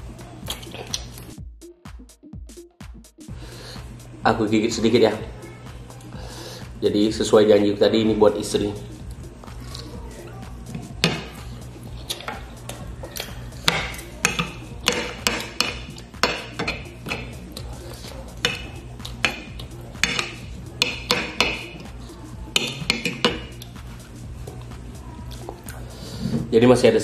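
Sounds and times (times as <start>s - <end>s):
cutlery clinking against a bowl: 12.0s - 21.8s, 22.5s - 23.8s.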